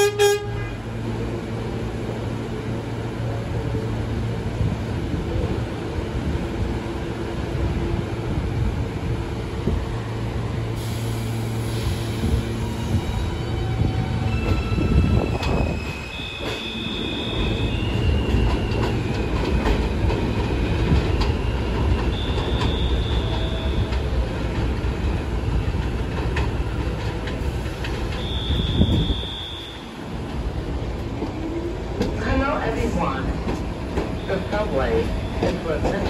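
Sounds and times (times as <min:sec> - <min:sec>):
train rumbling over steel track: 0:00.0 - 0:36.0
high wheel squeals: 0:21.3 - 0:24.0.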